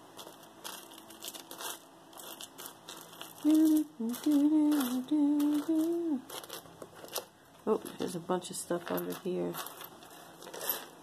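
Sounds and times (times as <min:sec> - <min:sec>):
earrings clicking and rustling: 0:00.0 - 0:11.0
woman humming: 0:03.4 - 0:06.3.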